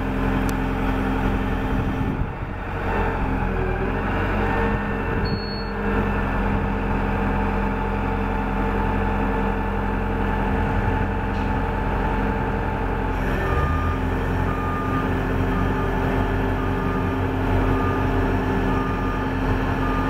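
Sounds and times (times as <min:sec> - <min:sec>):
diesel engine running: 0:00.0 - 0:20.0
reversing beeper tones: 0:13.3 - 0:20.0.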